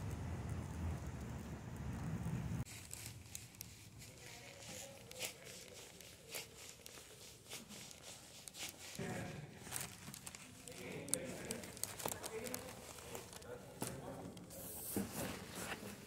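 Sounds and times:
wind rumbling on microphone: 0:00.0 - 0:02.7
bag rustling: 0:02.7 - 0:14.0.

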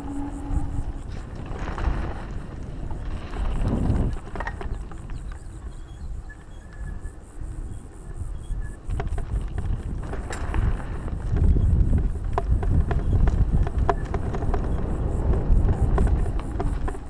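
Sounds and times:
loud rumble: 0:00.0 - 0:03.3
bike tyre noise: 0:00.0 - 0:17.0
wind buffeting microphone: 0:00.0 - 0:17.0.

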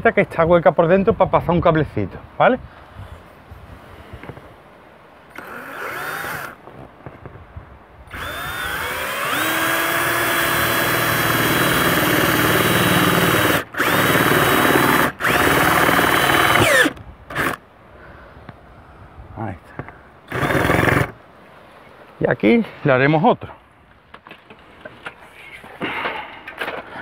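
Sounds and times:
electric drill whining: 0:05.3 - 0:06.6, 0:08.1 - 0:17.6, 0:20.3 - 0:21.1.

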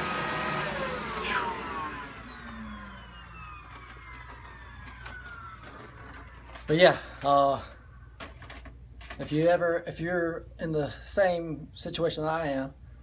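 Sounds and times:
vacuum cleaner motor winding down: 0:00.0 - 0:07.4.

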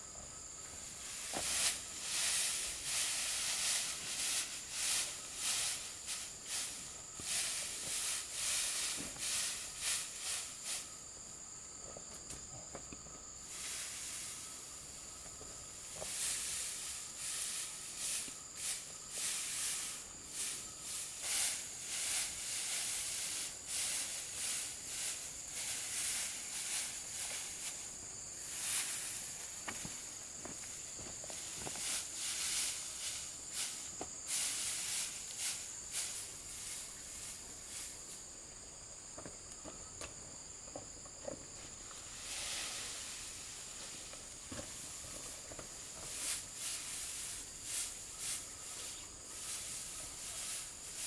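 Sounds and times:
high insect drone: 0:00.0 - 0:51.0
dry straw rustling and crackling: 0:01.0 - 0:10.8, 0:41.8 - 0:51.0.

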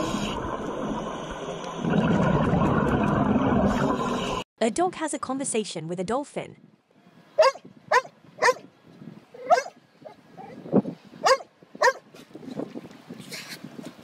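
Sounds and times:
dog barking: 0:07.4 - 0:08.6, 0:09.4 - 0:09.8, 0:11.2 - 0:12.0.

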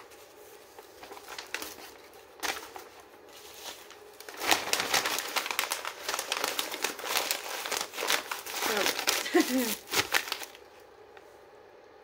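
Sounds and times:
paper crinkling and rustling: 0:00.0 - 0:11.3.

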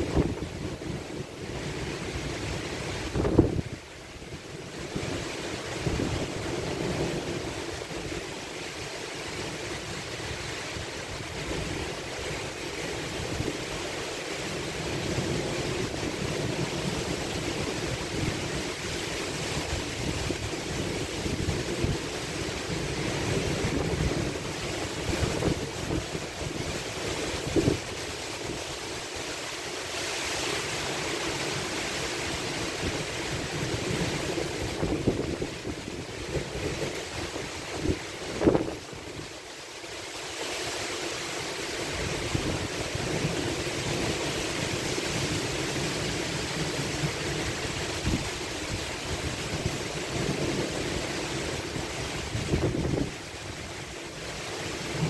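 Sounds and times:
wind gusting on microphone: 0:00.0 - 0:08.4, 0:13.0 - 0:28.6, 0:32.4 - 0:39.3, 0:41.9 - 0:55.0
heavy rain: 0:00.0 - 0:55.0.

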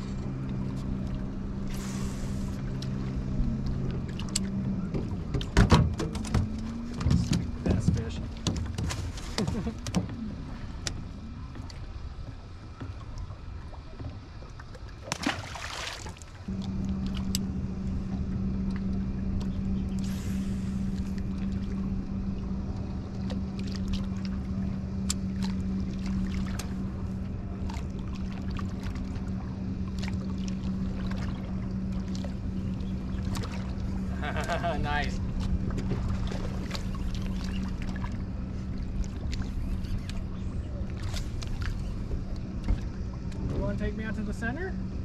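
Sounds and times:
light clicks: 0:03.6 - 0:04.5, 0:39.0 - 0:40.2.

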